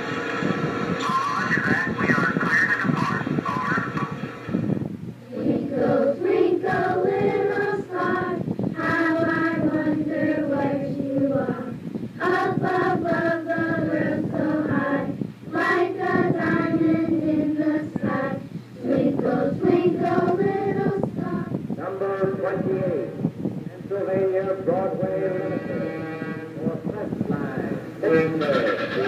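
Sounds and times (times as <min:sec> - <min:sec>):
children's choir singing: 0:05.2 - 0:21.6.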